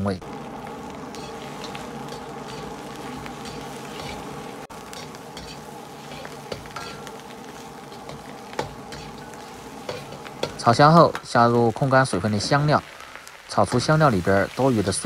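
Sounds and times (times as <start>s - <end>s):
food sizzling in oil: 0.0s - 15.0s
metal ladle scraping a wok: 1.1s - 10.6s.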